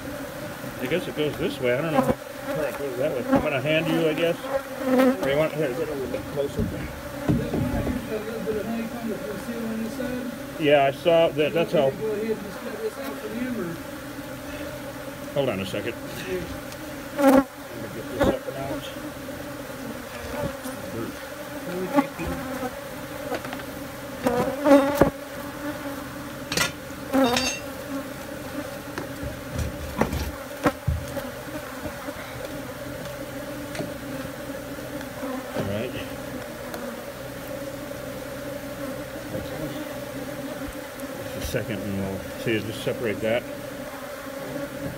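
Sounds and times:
bees droning: 0.0 - 44.9
knocks and scrapes on honeycomb: 0.8 - 8.7, 19.7 - 37.8, 43.1 - 44.9.

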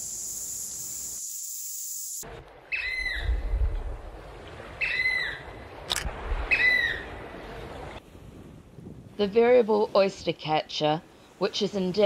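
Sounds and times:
high steady insect hiss: 0.0 - 2.2
oystercatcher piping calls: 2.7 - 3.3, 4.8 - 5.4.

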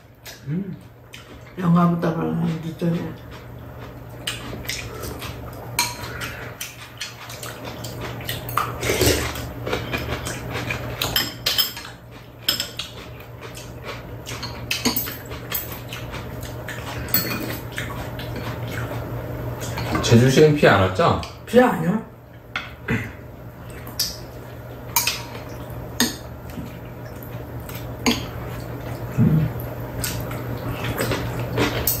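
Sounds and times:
metal utensils clinking on bowls: 11.0 - 13.0, 14.4 - 15.9, 17.0 - 17.6, 31.0 - 32.0.

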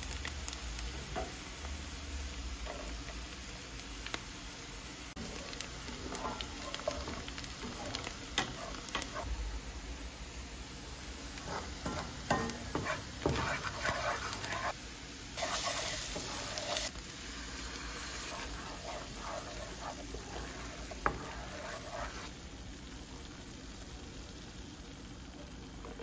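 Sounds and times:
onions sizzling in a pan: 0.0 - 26.0
wooden spoon scraping a pan: 2.6 - 3.2, 5.2 - 9.3, 11.4 - 14.8, 15.4 - 16.9, 17.9 - 22.3
spoon knocking against pan: 11.8 - 14.2.

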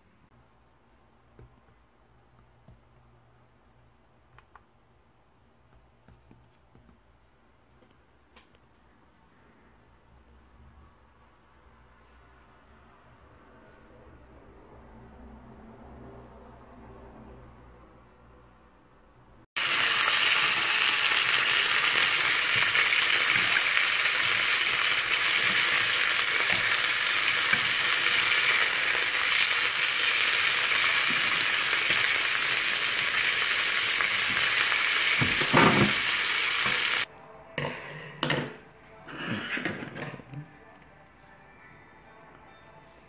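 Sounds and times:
steak sizzling in a frying pan: 19.6 - 37.1.

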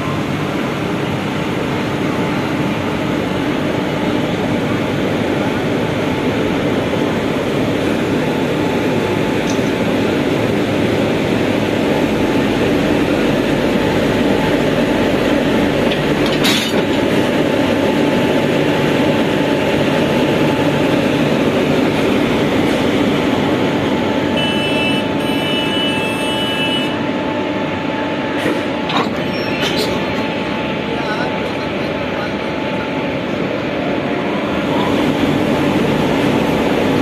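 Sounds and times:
locomotive blower hum: 0.0 - 37.0.

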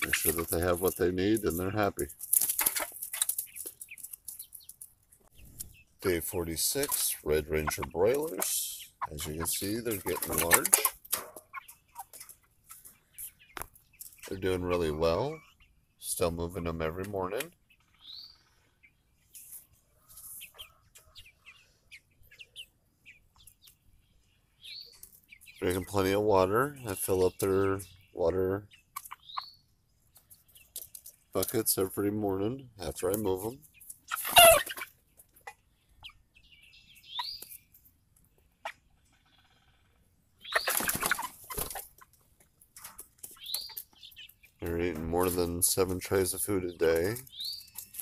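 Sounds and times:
chickens peeping: 0.0 - 48.0
chickens flapping wings: 2.2 - 4.1, 40.6 - 42.0.

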